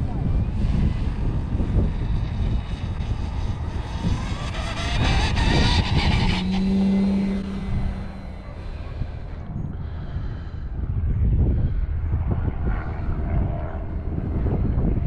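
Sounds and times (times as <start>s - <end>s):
model plane motor whine: 0.0s - 9.4s
wind rumble on microphone: 0.0s - 15.0s
tailwheel scraping fuselage: 0.5s - 9.4s.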